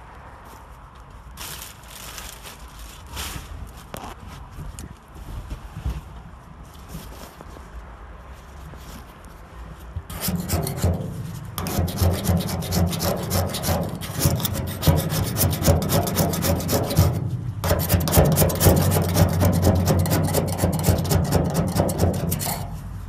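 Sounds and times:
scraper rasping on steel: 10.1 - 23.0.

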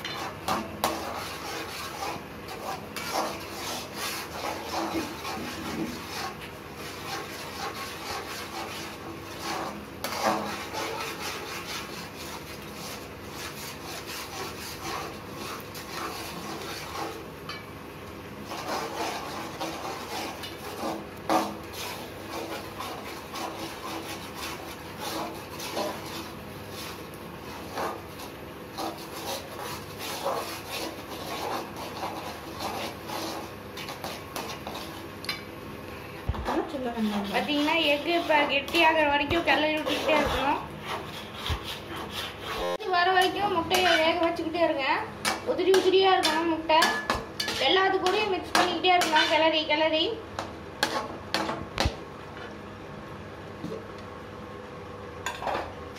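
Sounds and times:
metal spatula scraping a pan: 0.0 - 17.6, 18.4 - 35.5, 36.4 - 49.8, 50.4 - 51.6
spatula knocking on pan: 45.2 - 49.3.

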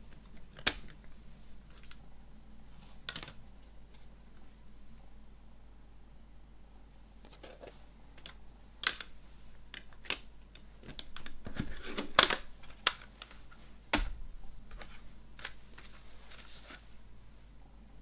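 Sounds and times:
plastic case clicking: 7.3 - 14.1.

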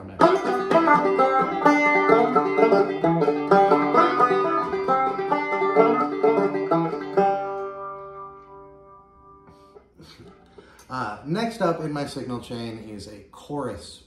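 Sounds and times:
banjo through phaser: 0.0 - 10.8.

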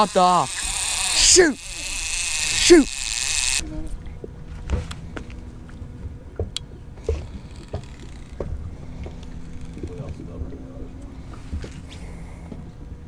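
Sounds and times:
boat rumbling on water: 3.6 - 13.0.

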